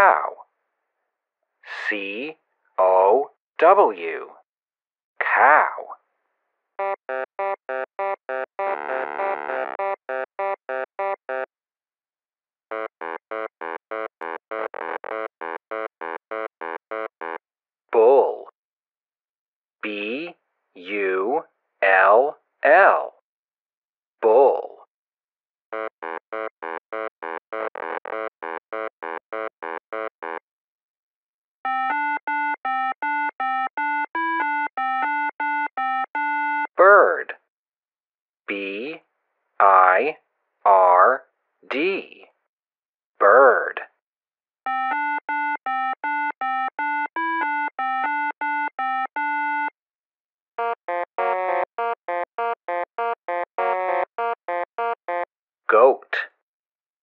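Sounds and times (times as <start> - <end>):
synth tune: 6.8 - 11.4, 50.6 - 55.2
synthesizer keyboard notes: 6.8 - 11.5, 12.7 - 17.4, 25.8 - 30.4, 31.7 - 36.8, 44.7 - 49.7, 50.6 - 55.3
low buzzy synthesizer notes: 8.6 - 9.9.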